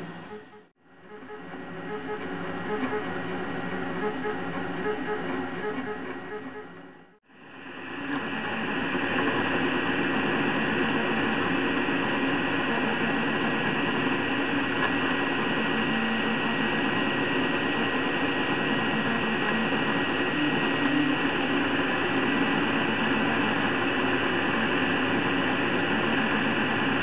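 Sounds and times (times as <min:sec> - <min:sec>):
cooling fan whooshing hiss: 0:07.4 - 0:27.0
stepper motors humming: 0:07.6 - 0:27.0.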